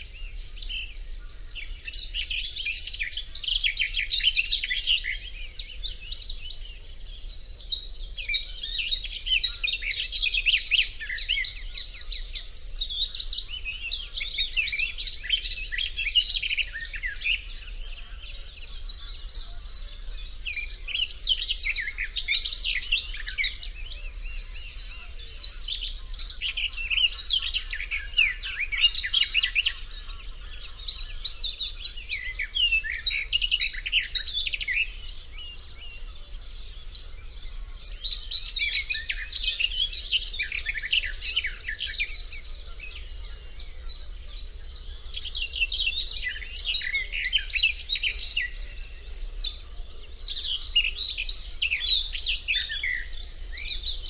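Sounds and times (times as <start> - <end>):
warbler singing chattering song: 0.0 - 54.0.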